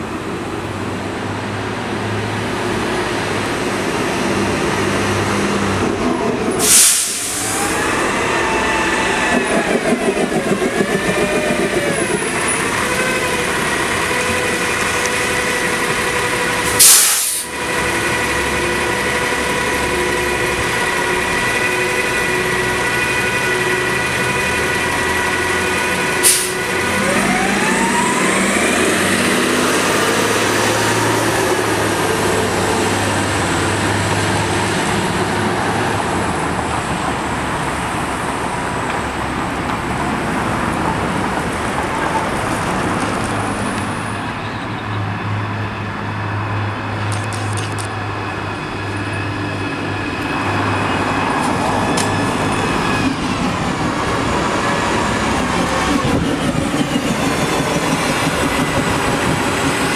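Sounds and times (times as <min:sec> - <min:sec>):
bus engine whining: 0:00.0 - 0:59.9
bus rising whine pulling away: 0:00.0 - 0:59.9
compressed air hisses: 0:06.6 - 0:07.6, 0:16.7 - 0:17.5.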